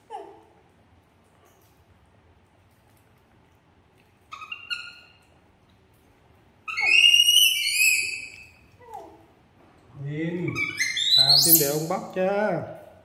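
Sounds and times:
baby monkey squealing: 0:04.3 - 0:05.2, 0:06.7 - 0:08.7, 0:10.5 - 0:11.9.

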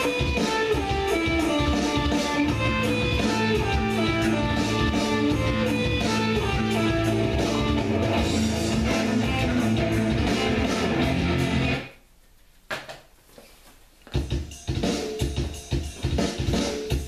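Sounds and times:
bass guitar: 0:00.0 - 0:11.9
electric guitar: 0:00.0 - 0:11.9.

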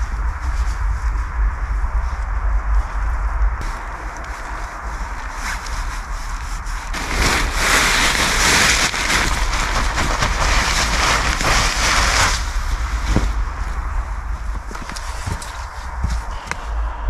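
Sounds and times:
waterproof fabric rustling: 0:03.6 - 0:16.3.

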